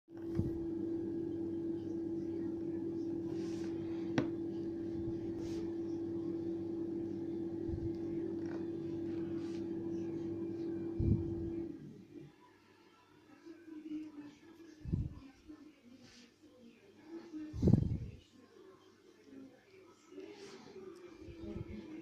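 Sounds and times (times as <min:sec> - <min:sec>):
steady hum: 0:00.1 - 0:12.3.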